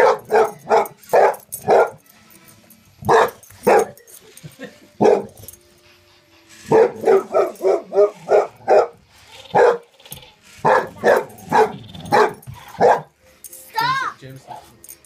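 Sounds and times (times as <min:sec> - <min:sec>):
dog barking: 0:00.0 - 0:02.1, 0:03.0 - 0:04.1, 0:05.0 - 0:05.5, 0:06.7 - 0:09.9, 0:10.6 - 0:13.1.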